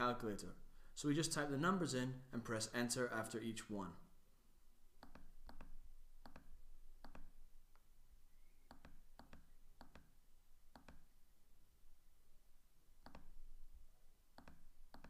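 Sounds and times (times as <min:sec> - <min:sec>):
faint computer mouse clicks: 0:05.0 - 0:07.9, 0:08.6 - 0:10.1, 0:10.7 - 0:11.1, 0:13.0 - 0:13.3, 0:14.4 - 0:15.0.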